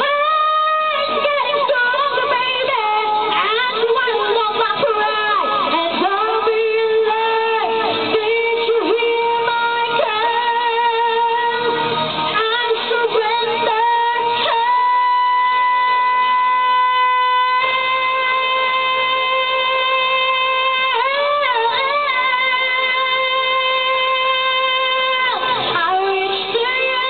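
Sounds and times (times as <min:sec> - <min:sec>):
girl singing into microphone: 0:00.0 - 0:27.0
karaoke backing track: 0:00.0 - 0:27.0.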